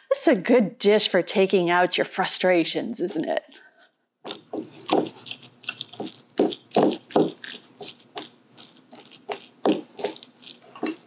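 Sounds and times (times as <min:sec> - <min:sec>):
wet squelches and scrapes in bowl: 0:04.3 - 0:11.0.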